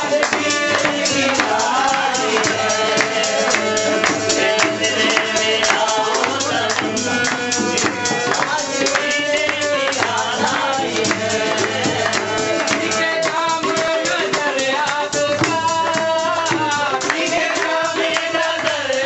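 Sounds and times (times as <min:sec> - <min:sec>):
fast hand drum beat: 0:00.0 - 0:19.0
men singing: 0:00.0 - 0:19.0.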